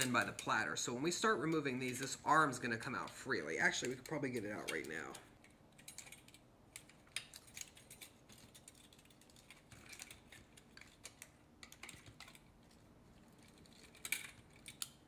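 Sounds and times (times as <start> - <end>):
faint clicks and metallic ticks: 2.9 - 15.0.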